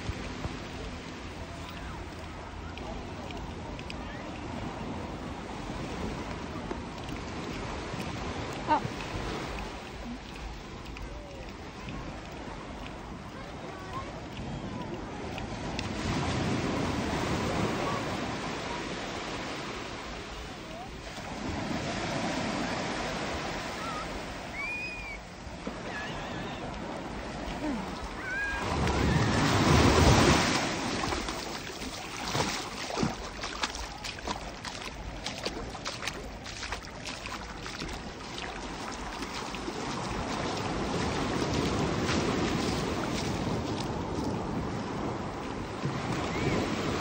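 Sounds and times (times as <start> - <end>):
small water splashes: 0.0 - 47.0
waves washing on beach: 0.0 - 47.0.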